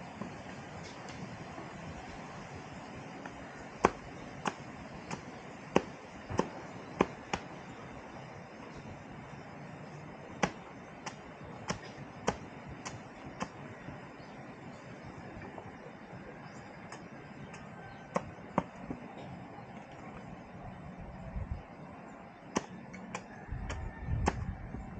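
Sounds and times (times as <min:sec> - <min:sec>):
machete chopping bamboo: 0:03.8 - 0:07.5, 0:10.4 - 0:13.6, 0:22.5 - 0:23.3.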